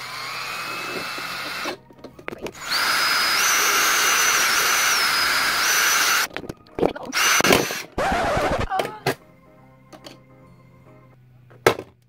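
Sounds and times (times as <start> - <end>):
power drill whining: 0.0 - 1.8, 2.5 - 6.3, 7.1 - 8.7.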